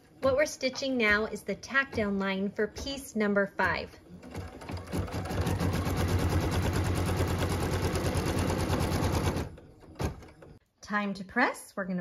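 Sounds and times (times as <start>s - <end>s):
embroidery machine stitching: 3.7s - 10.5s.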